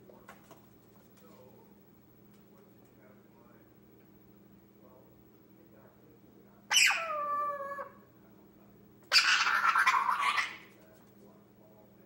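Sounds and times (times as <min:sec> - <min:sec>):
parrot calling: 0:06.7 - 0:08.0, 0:09.1 - 0:10.7.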